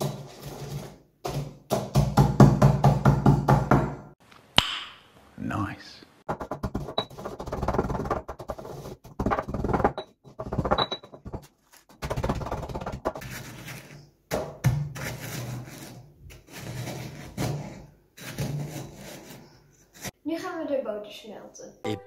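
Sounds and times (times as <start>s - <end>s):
pestle grinding biscuits in mortar: 6.3s - 14.0s, 14.6s - 20.1s.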